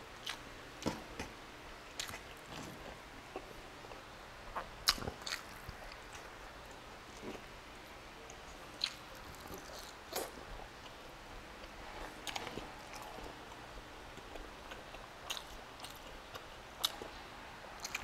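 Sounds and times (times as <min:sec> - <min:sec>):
wet chewing and mouth smacks: 0:01.9 - 0:07.4, 0:08.8 - 0:11.0, 0:14.2 - 0:17.1.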